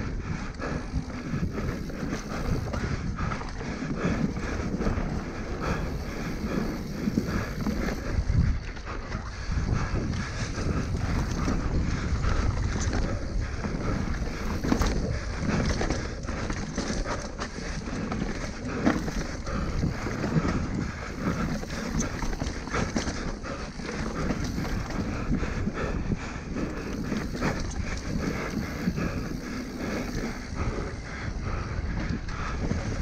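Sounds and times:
wind rumbling on microphone: 0:00.0 - 0:33.0
tyres rolling over dirt: 0:03.8 - 0:08.1
bike knocks and rattles: 0:12.6 - 0:25.2.

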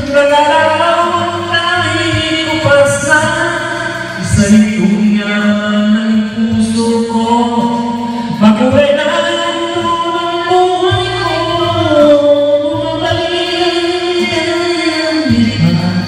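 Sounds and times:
karaoke backing track: 0:00.0 - 0:16.0
person singing into a microphone: 0:00.0 - 0:16.0.

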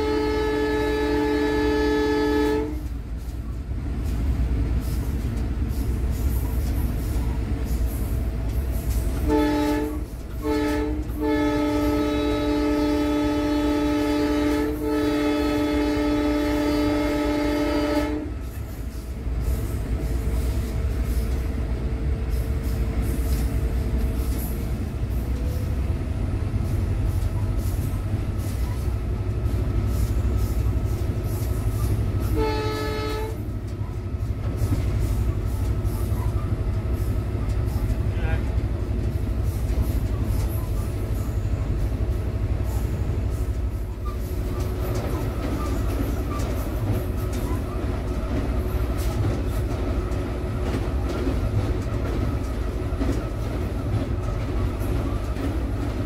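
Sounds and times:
locomotive air horn blasts: 0:00.0 - 0:02.9, 0:09.1 - 0:18.4, 0:32.2 - 0:33.5
locomotive running noise: 0:00.0 - 0:56.0
train wheels on rails: 0:00.0 - 0:56.0.

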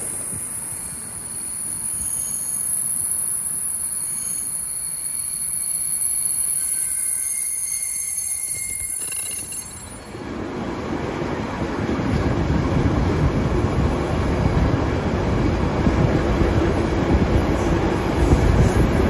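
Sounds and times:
train wheels and brakes squealing: 0:00.0 - 0:12.0, 0:16.6 - 0:19.0
train cars rumbling on track: 0:00.0 - 0:19.0.

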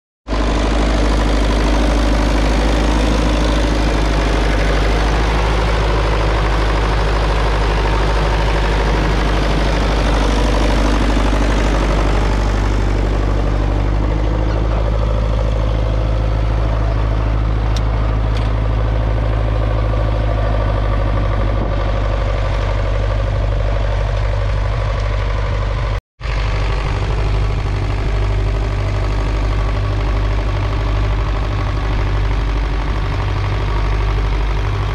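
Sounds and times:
tractor diesel engine under load: 0:00.2 - 0:34.9.

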